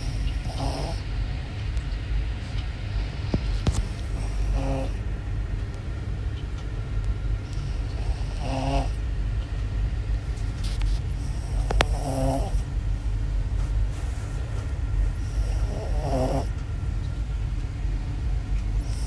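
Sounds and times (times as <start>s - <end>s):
puppy snoring: 0.0s - 1.1s, 2.9s - 5.0s, 7.4s - 9.0s, 10.4s - 12.7s, 15.1s - 16.5s, 18.8s - 19.0s
steady low rumble: 0.0s - 19.0s.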